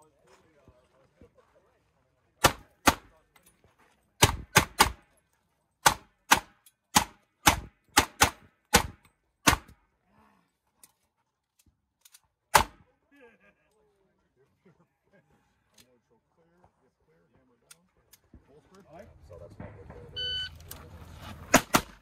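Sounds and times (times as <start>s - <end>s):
handgun shots: 4.2s - 5.0s, 5.8s - 9.8s, 12.5s - 12.8s, 21.5s - 22.0s.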